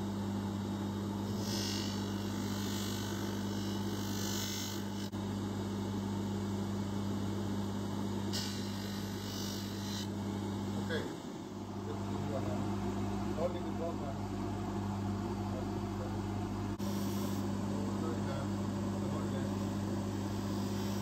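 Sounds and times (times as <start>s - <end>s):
polishing motor humming: 1.3s - 5.2s, 8.3s - 10.2s, 19.0s - 21.0s.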